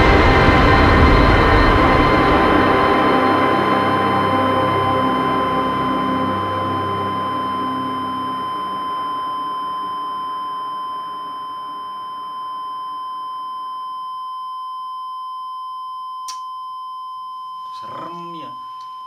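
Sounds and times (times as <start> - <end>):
low drone: 0.0 - 12.5
steady electronic beep tone: 0.0 - 19.0.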